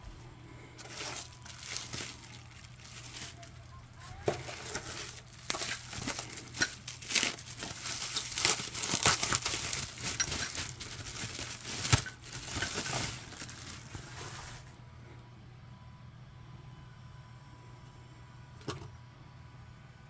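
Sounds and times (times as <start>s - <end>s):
bubble wrap crinkling and crackling: 0.8s - 14.8s.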